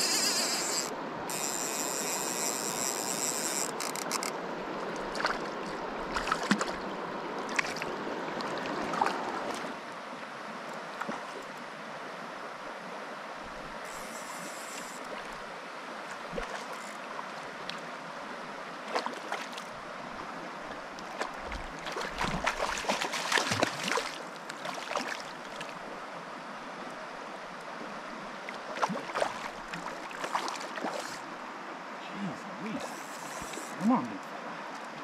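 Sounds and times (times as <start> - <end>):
stream running over stones: 0.0 - 35.0
splashing in water: 5.0 - 9.7, 18.9 - 19.7, 21.0 - 25.8, 28.6 - 31.2.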